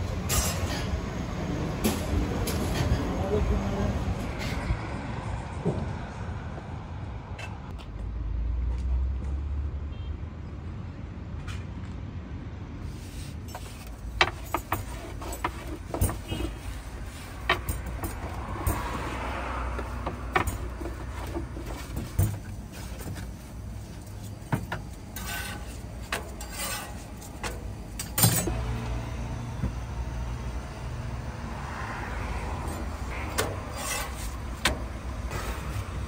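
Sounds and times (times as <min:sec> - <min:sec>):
utensils and containers clattering: 0:13.4 - 0:19.2, 0:19.8 - 0:23.3, 0:24.1 - 0:28.6.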